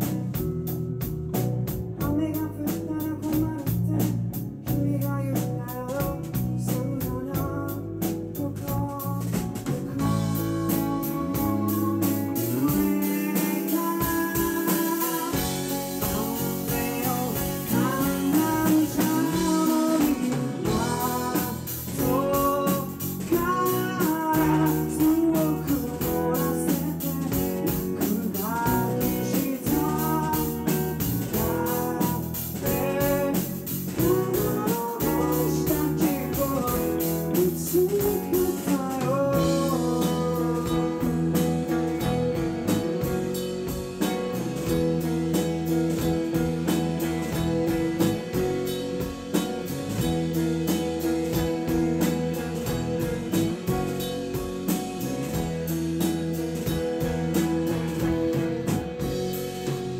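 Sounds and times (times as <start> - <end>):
drum kit: 0.0 - 59.9
electric guitars: 0.0 - 59.9
man singing lead vocal: 1.9 - 43.8.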